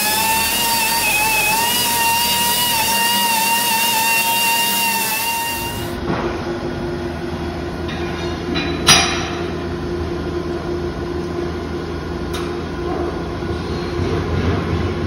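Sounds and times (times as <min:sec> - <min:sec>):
machinery drone: 0:00.0 - 0:07.9.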